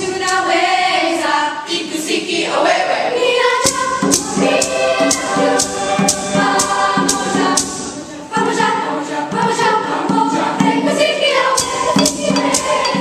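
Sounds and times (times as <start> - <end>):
children's choir singing: 0.0 - 13.0
sharp percussion beat: 3.6 - 13.0.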